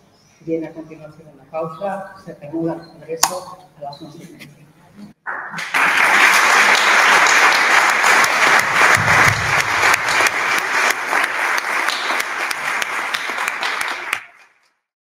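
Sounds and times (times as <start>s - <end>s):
audience applause: 5.3s - 14.6s.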